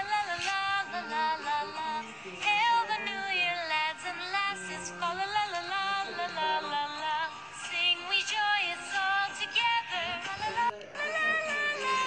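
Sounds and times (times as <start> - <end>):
instrumental backing: 0.0 - 12.0
high-pitched voice singing: 9.6 - 12.0.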